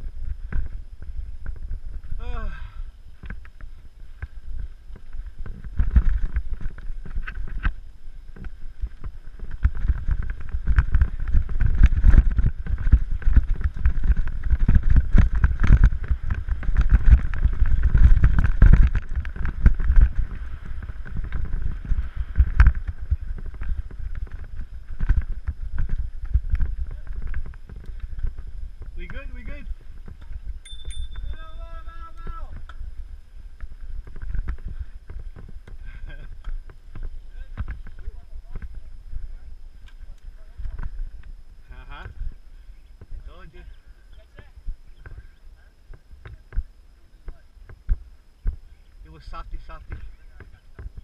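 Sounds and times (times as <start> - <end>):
wind buffeting microphone: 0.0 - 51.0
mountain bike rattling on trail: 3.0 - 51.0.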